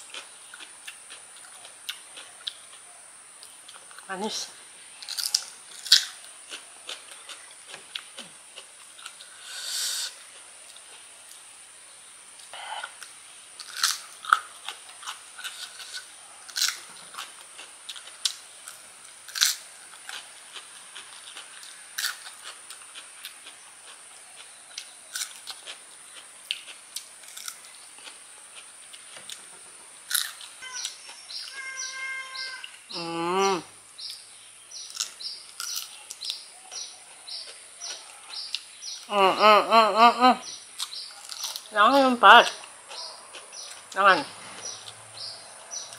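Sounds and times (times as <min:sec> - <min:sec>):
crunching and chewing fruit: 0:00.0 - 0:39.2, 0:40.4 - 0:45.9
bird chirping: 0:30.4 - 0:45.9.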